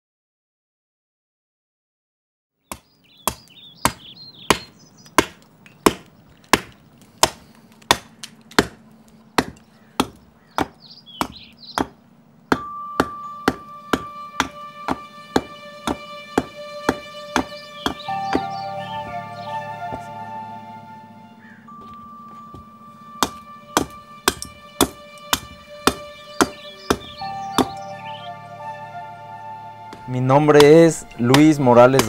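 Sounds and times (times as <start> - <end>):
hand tool chopping wood: 2.7 - 8.8, 9.4 - 18.6, 21.8 - 27.8, 30.6 - 32.0
held musical note: 12.6 - 32.0.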